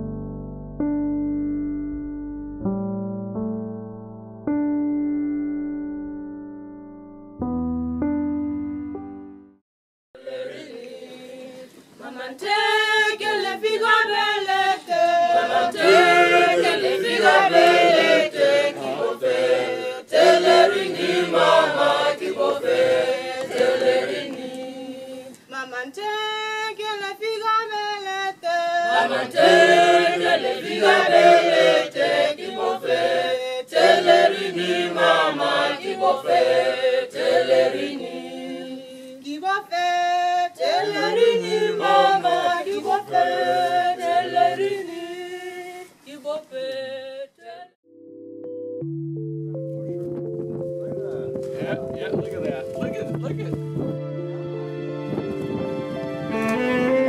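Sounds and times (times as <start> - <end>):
group singing in harmony: 10.2 - 25.4, 28.4 - 47.8.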